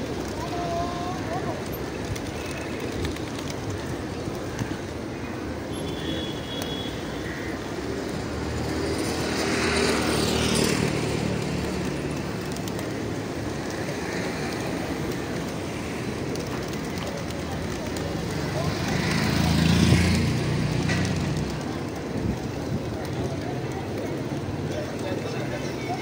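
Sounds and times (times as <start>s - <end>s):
pigeons flapping wings: 0.0s - 5.0s, 8.0s - 26.0s.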